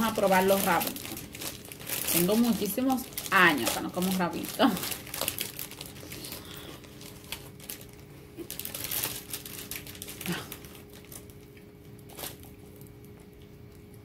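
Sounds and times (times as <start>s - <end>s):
plastic snack bag crinkling: 0.0s - 14.0s
snack sticks crunching: 0.4s - 14.0s.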